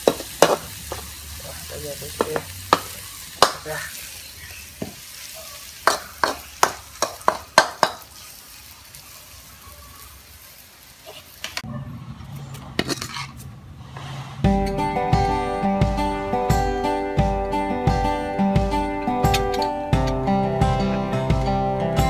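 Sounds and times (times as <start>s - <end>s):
food sizzling: 0.0s - 13.5s
metal ladle scraping a wok: 11.0s - 14.8s
acoustic guitar music: 14.4s - 22.0s.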